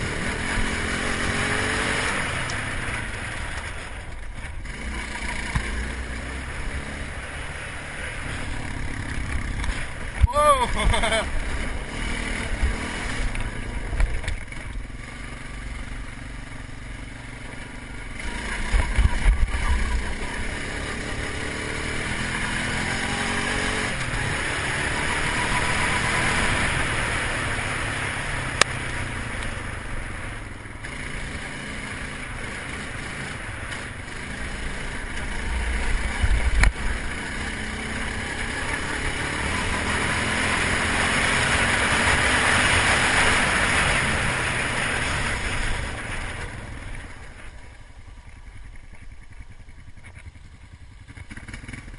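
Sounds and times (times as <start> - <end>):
atv engine running: 0.0 - 51.9.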